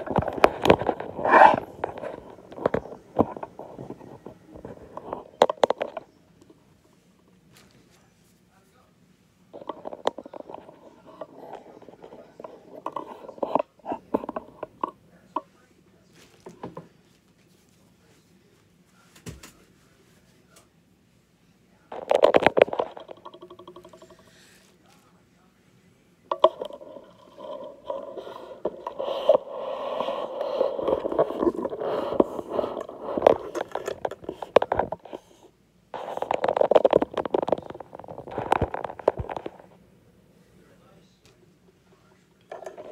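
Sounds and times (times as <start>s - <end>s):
handling noise scraping and knocks: 0.0s - 6.1s, 9.6s - 17.3s, 21.9s - 25.0s, 26.3s - 39.8s, 42.4s - 42.9s.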